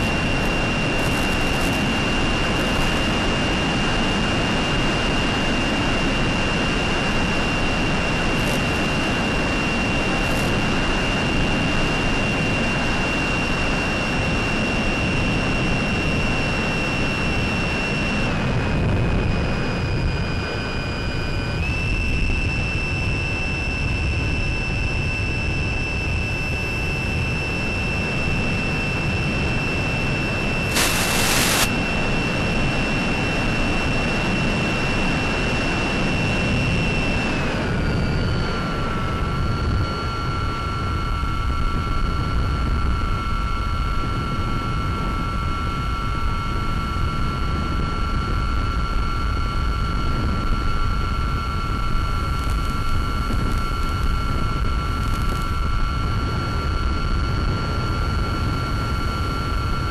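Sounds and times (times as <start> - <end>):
electric motor propeller whine: 0.0 - 59.9
rushing wind: 0.0 - 59.9
burst of hiss: 30.7 - 31.7.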